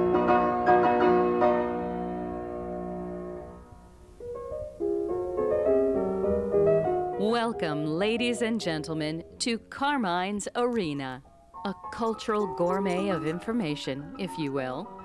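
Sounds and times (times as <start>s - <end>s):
piano music: 0.0s - 9.8s, 10.8s - 15.0s.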